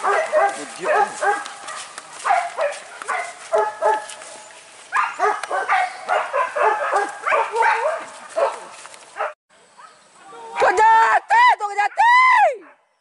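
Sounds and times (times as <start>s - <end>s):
dogs barking and yelping: 0.0s - 10.0s.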